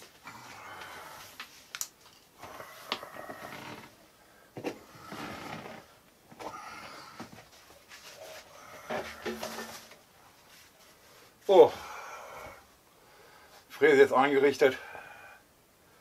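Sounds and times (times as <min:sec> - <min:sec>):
scraping and rustling: 0:07.3 - 0:11.2.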